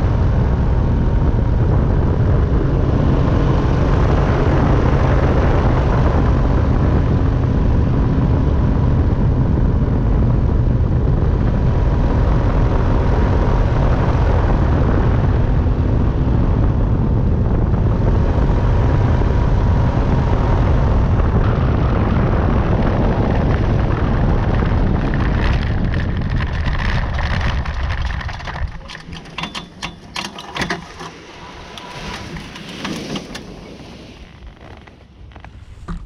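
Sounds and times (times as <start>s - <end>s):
engine and propeller running: 0.0s - 36.0s
clicks and rattles of cart: 25.0s - 31.2s.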